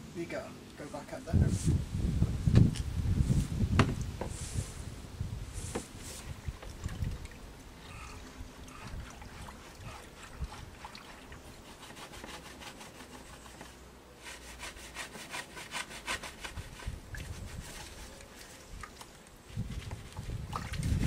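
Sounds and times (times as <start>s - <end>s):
rapid scraping strokes: 8.7s - 18.6s.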